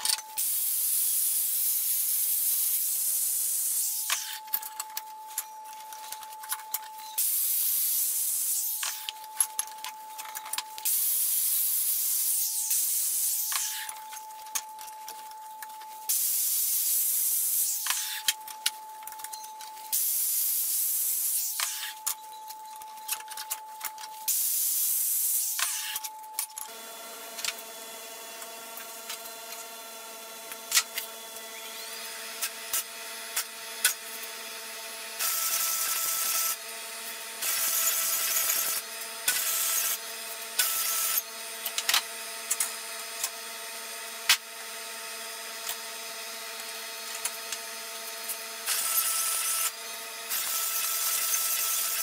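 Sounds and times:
angle grinder grinding steel: 0:35.2 - 0:52.0.

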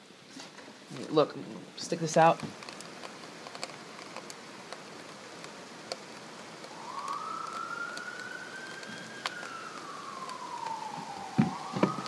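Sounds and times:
heavy rain hissing: 0:00.0 - 0:12.0
ice pellets ticking: 0:02.4 - 0:12.0
emergency vehicle siren wailing: 0:06.4 - 0:12.0.

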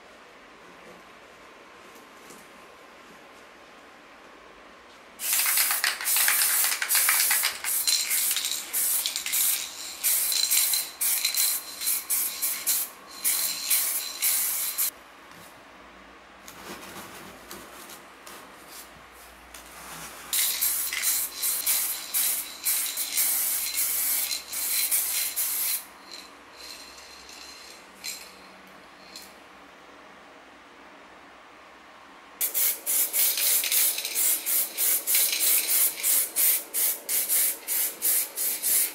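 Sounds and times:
spray can hissing bursts: 0:05.2 - 0:14.9, 0:20.3 - 0:25.9, 0:32.4 - 0:38.9.

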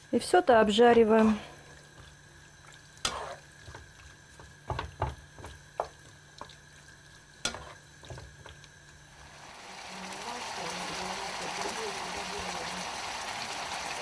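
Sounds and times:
meat frying in oil: 0:00.0 - 0:14.0
wooden spatula stirring: 0:00.8 - 0:09.0.

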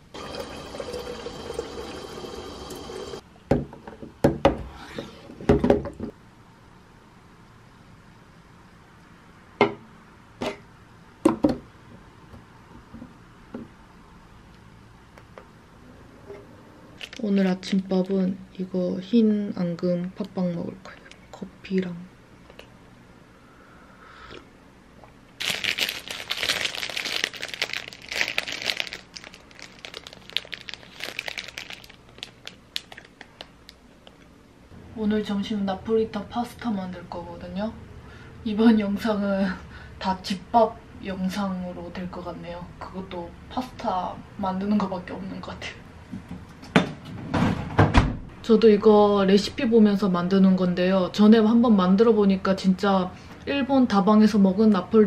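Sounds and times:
plastic packaging crinkling: 0:17.0 - 0:17.3, 0:25.4 - 0:34.2.

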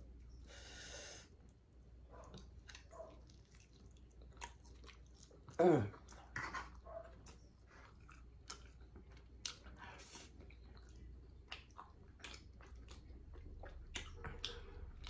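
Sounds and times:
person chewing food: 0:01.2 - 0:15.0.

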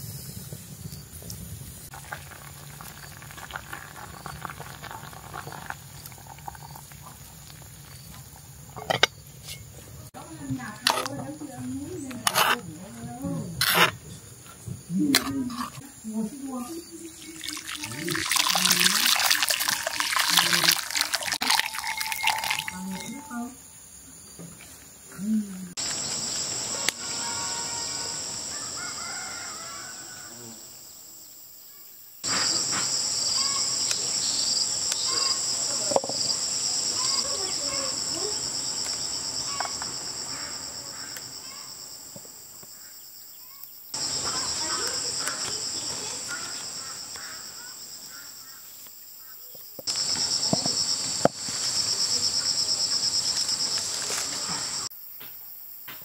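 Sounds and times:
high-pitched insect chorus: 0:15.8 - 0:25.1, 0:25.7 - 0:56.0.

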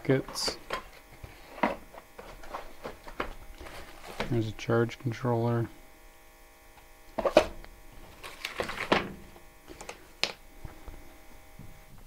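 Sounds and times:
faint steady hum: 0:00.0 - 0:12.0
plastic bag rustling: 0:00.2 - 0:04.5, 0:07.9 - 0:09.0.

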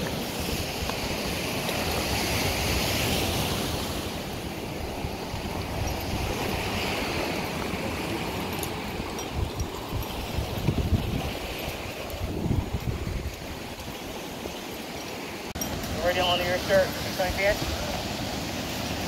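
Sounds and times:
waves breaking: 0:00.0 - 0:19.0.

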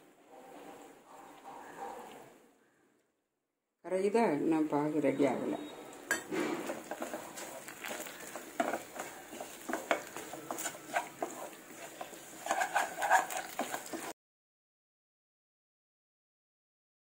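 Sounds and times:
wooden spatula scraping a pan: 0:00.0 - 0:02.2, 0:06.1 - 0:14.2.

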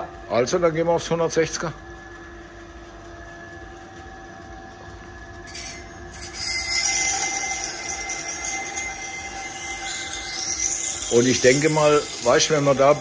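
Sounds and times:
sharpening machine humming: 0:05.4 - 0:13.0
knife blade grinding on wheel: 0:05.5 - 0:13.0.

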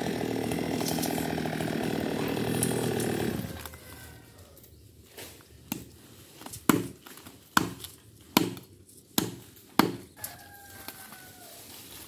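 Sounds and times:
machete chopping into log: 0:06.6 - 0:10.1.

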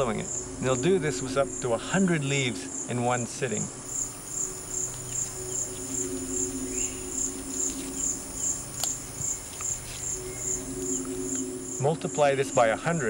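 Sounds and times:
insects trilling: 0:00.0 - 0:13.0
steady high insect buzz: 0:00.0 - 0:13.0
low hum: 0:03.9 - 0:11.8.

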